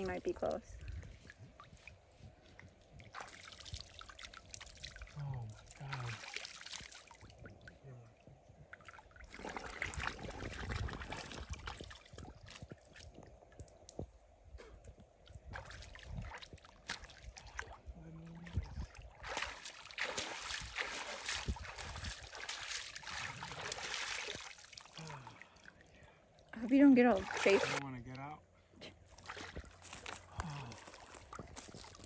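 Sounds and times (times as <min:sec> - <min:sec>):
water sloshing and splashing: 0:00.0 - 0:14.4, 0:15.0 - 0:28.0, 0:29.0 - 0:32.0
trickle of flowing water: 0:00.0 - 0:28.3.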